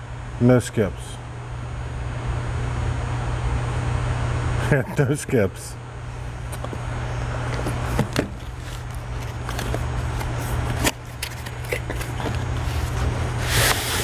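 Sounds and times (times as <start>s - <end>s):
steady low hum: 0.0s - 14.0s
roll scraping out of box: 8.6s - 14.0s.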